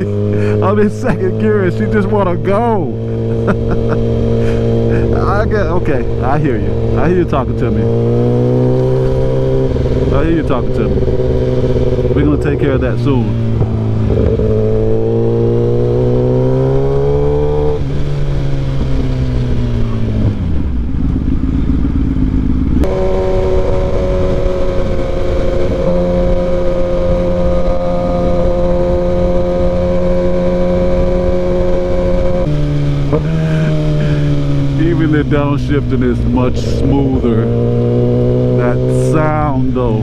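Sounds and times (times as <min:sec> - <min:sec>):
motorcycle engine revving: 0:00.0 - 0:40.0
wind and road rush: 0:00.0 - 0:40.0.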